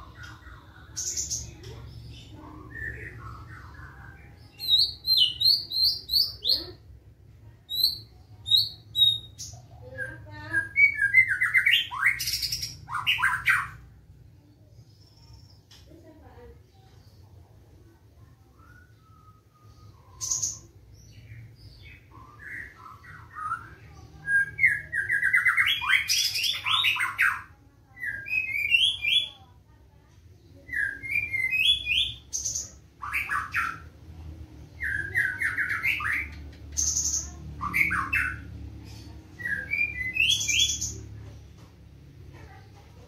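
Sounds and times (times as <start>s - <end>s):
songbird singing fast phrases: 0.0s - 6.9s, 7.7s - 14.0s, 18.2s - 29.4s, 30.5s - 41.2s.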